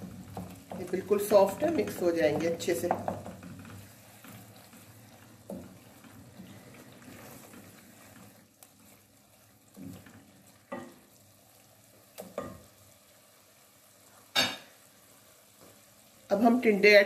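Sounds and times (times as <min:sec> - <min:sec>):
faint sizzle: 0:00.0 - 0:17.0
spatula stirring tomatoes in pot: 0:00.0 - 0:17.0
spatula knocking on metal pot: 0:00.2 - 0:03.6.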